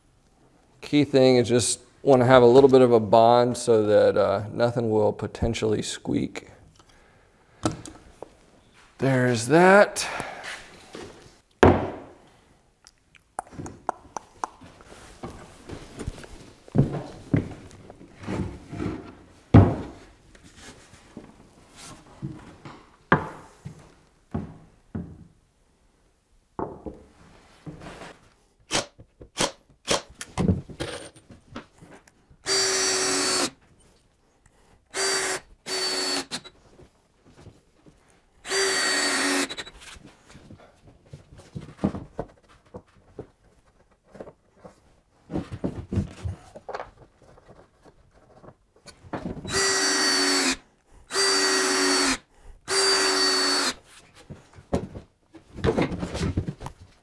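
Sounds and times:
knocks and thumps: 19.5s - 20.0s, 54.3s - 56.9s
cordless drill driving screws: 32.4s - 33.6s, 34.9s - 36.6s, 38.4s - 39.8s, 49.5s - 53.8s.

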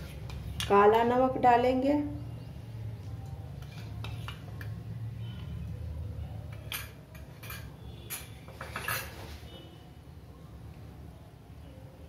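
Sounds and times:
spoon clinking on steel utensils: 6.5s - 9.3s.

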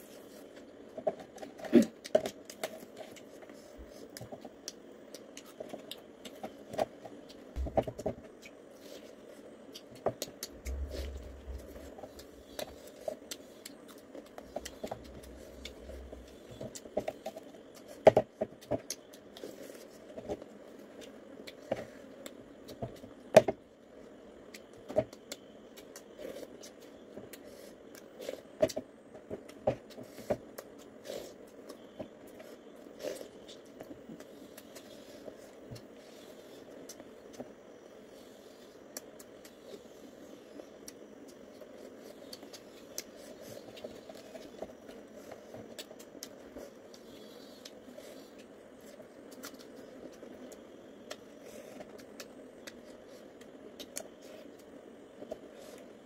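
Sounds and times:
steady low hum: 0.0s - 56.0s
person chewing: 4.0s - 18.0s.

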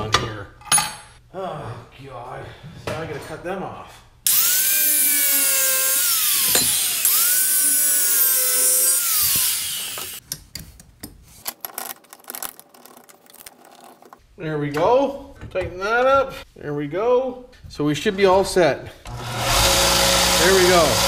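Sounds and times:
angle grinder cutting metal: 4.3s - 10.2s, 19.1s - 21.0s.

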